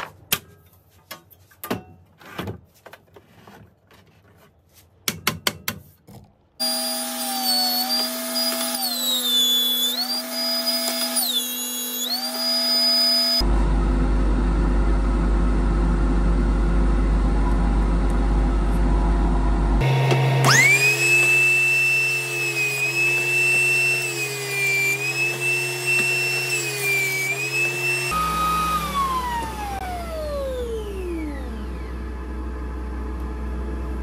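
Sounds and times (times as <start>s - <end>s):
jointer motor whine: 6.6s - 13.4s, 19.8s - 34.0s.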